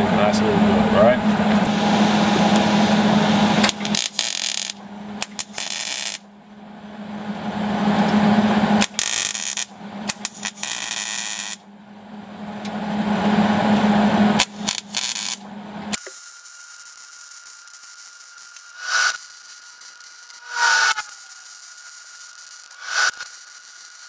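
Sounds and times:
welder arc crackling and buzzing: 0.0s - 11.7s, 12.6s - 24.0s
steady low hum: 0.0s - 16.0s.

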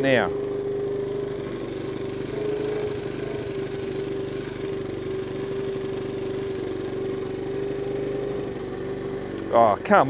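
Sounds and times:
man talking: 0.0s - 0.4s, 9.5s - 10.0s
motorcycle engine idling: 0.0s - 10.0s.

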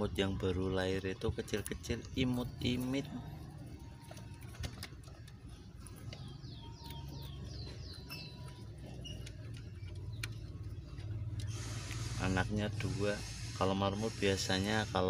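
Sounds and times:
guinea pigs rustling and feeding: 0.0s - 15.0s
small bird chirping: 0.2s - 12.2s.

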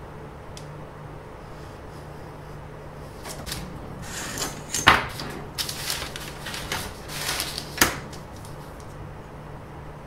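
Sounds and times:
low steady hum: 0.0s - 10.0s
paper rustling and scraping: 3.2s - 9.0s.

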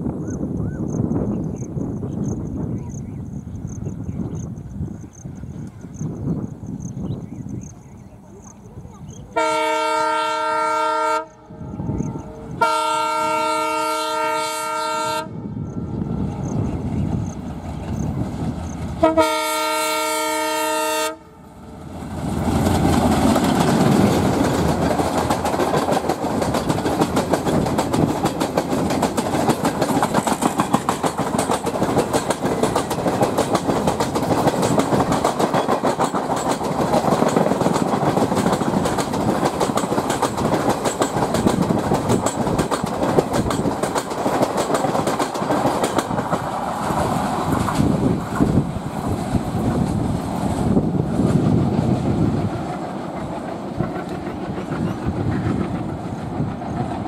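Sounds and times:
locomotive horn: 9.4s - 16.0s, 19.0s - 21.5s
train wheels clattering over rails: 21.9s - 57.0s.

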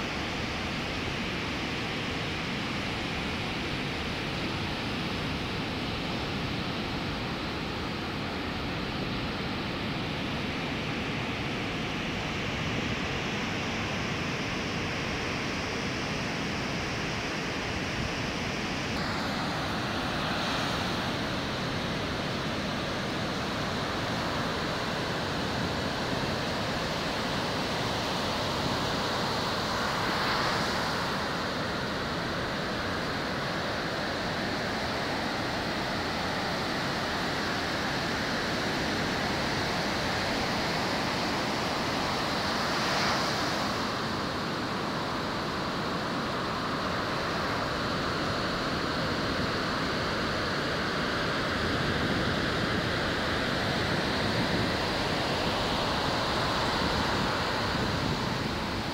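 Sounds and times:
ocean waves breaking on shore: 16.8s - 58.9s
wind on microphone: 51.8s - 58.9s.

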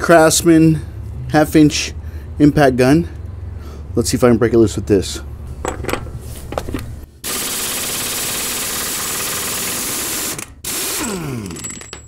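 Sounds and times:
air impact wrench hammering: 6.7s - 12.0s.

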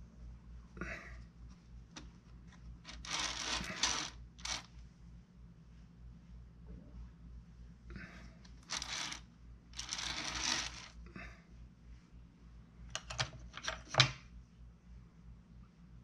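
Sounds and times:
rustling and scraping: 1.5s - 4.7s, 8.5s - 9.2s, 9.8s - 11.0s
metal tools clinking on wood: 2.9s - 4.6s.

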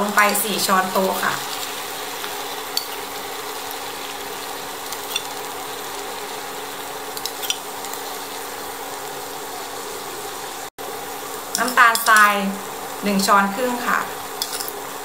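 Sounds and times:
food sizzling in a frying pan: 0.0s - 15.0s
metal spoon clinking ceramic bowl: 14.4s - 14.8s.

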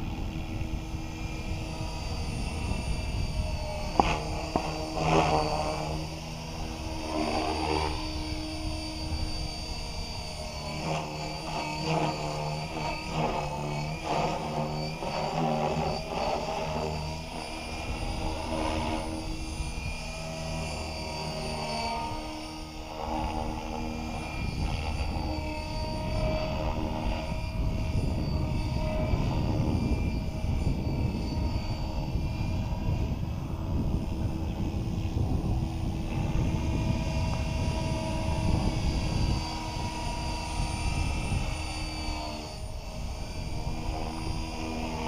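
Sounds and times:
rc helicopter motor whine: 0.0s - 45.0s
wind rumble on microphone: 0.0s - 45.0s.

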